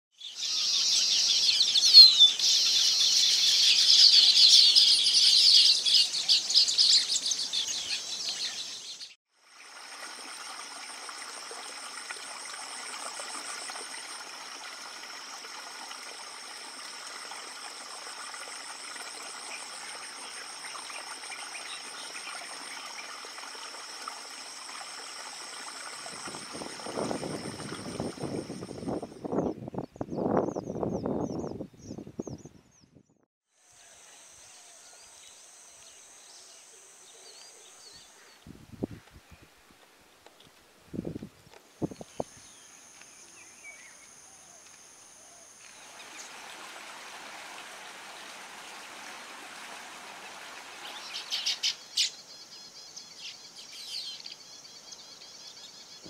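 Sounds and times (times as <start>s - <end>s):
small birds chirping: 0.2s - 9.2s, 50.8s - 56.0s.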